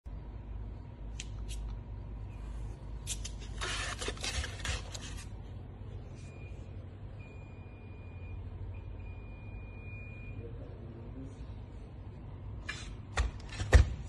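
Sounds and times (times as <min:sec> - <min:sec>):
steady low hum: 0:00.1 - 0:14.0
rubbing and scraping on plastic: 0:03.1 - 0:05.3.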